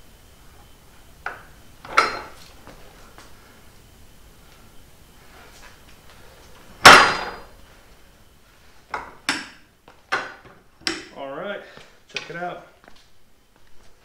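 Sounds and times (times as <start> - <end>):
loud clunk of lever: 1.9 - 2.4, 6.8 - 7.4.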